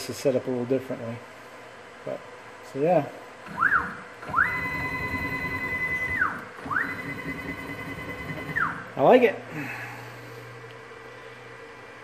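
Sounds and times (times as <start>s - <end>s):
stepper motor whine: 3.4s - 9.0s.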